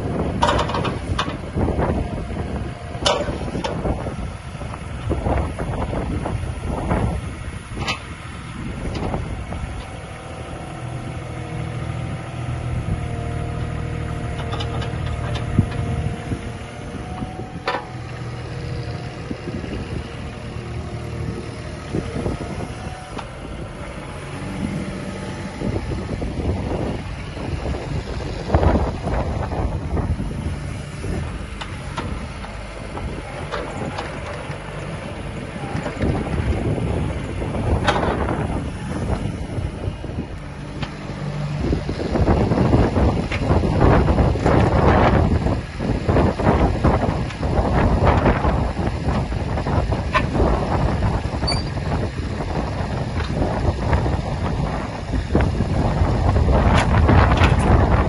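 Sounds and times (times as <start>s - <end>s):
excavator diesel engine running: 0.0s - 58.0s
wind buffeting microphone: 0.0s - 58.0s
hydraulic whine: 14.3s - 58.0s.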